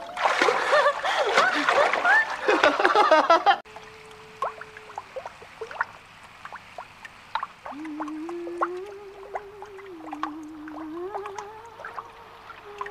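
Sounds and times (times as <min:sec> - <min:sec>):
water dripping and gurgling: 0:00.0 - 0:02.6, 0:03.7 - 0:12.9
wavering held note: 0:03.7 - 0:05.1, 0:07.7 - 0:12.9.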